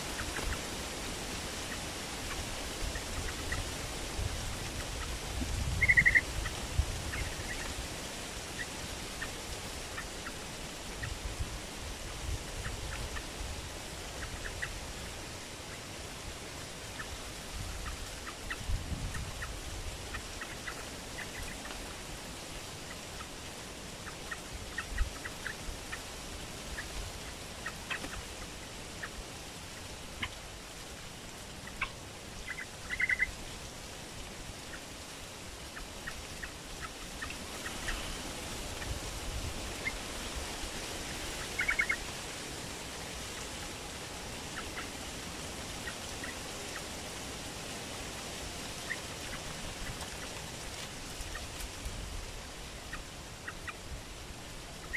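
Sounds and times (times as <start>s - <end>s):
steady background hiss: 0.0s - 54.9s
birds chirping: 5.7s - 7.7s, 31.6s - 33.3s, 36.0s - 38.9s, 41.3s - 42.0s.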